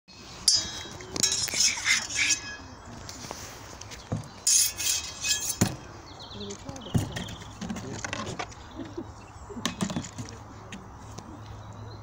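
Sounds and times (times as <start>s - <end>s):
swords clashing: 0.5s - 2.7s, 4.5s - 5.9s.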